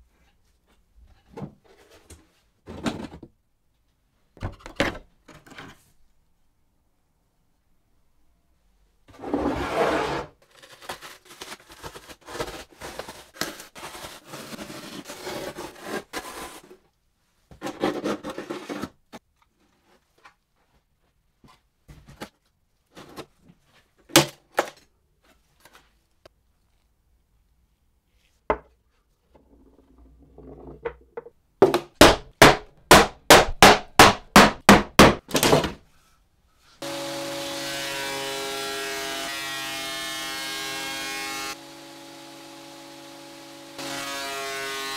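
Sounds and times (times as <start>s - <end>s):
scraping and rubbing: 9.1s - 10.4s
jointer-planer motor running: 36.8s - 37.9s, 41.6s - 44.4s.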